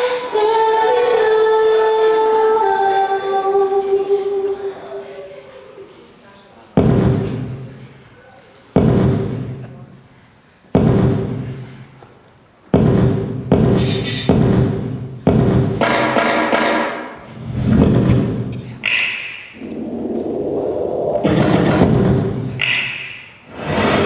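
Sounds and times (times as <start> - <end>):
heavy electronic hits: 19.6 - 23.0.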